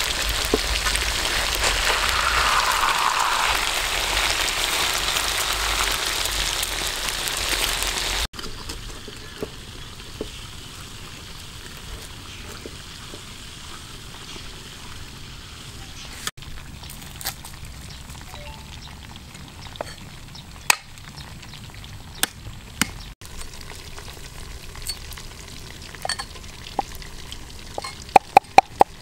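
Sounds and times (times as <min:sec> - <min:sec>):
fish deep-frying in oil: 0:00.0 - 0:29.0
oil popping: 0:21.9 - 0:29.0.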